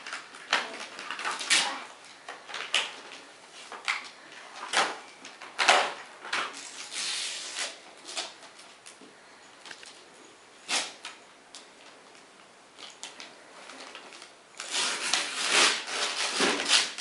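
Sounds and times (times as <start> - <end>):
wrapping paper rustling and tearing: 0.0 - 8.9, 10.6 - 11.2, 13.0 - 17.0.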